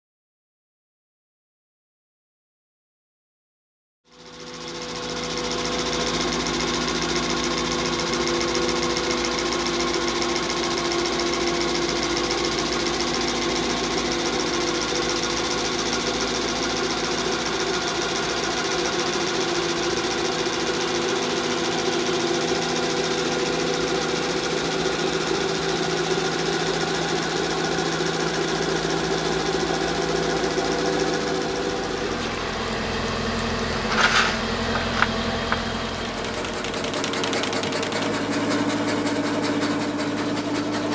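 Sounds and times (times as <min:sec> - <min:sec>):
boat engine humming: 0:29.4 - 0:40.6.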